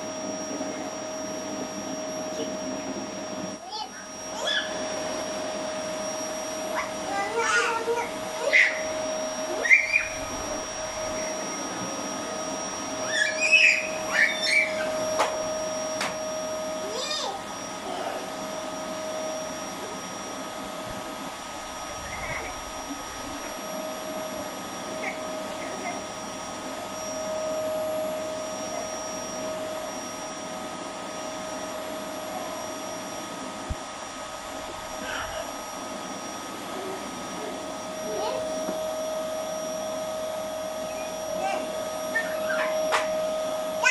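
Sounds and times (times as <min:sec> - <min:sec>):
vacuum cleaner whining: 0:00.0 - 0:43.9
child squealing and babbling: 0:03.6 - 0:04.9, 0:06.7 - 0:10.6, 0:13.0 - 0:15.1, 0:16.8 - 0:18.0, 0:22.0 - 0:22.6, 0:25.0 - 0:26.1, 0:37.5 - 0:38.6, 0:40.8 - 0:43.0.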